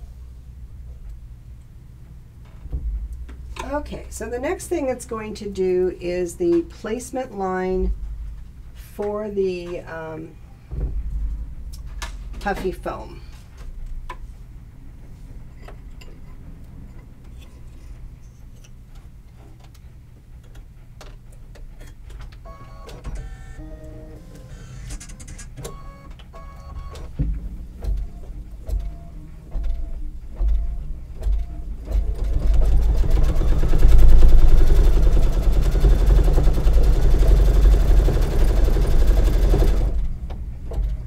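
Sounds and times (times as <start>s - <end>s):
embroidery machine stitching: 29.6s - 40.1s.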